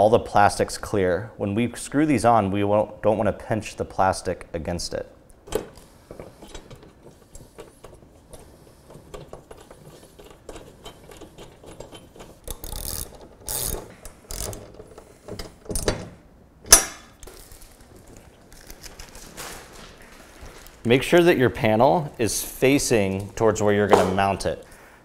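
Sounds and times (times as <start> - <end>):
ratchet tool clicking: 12.4 - 14.7.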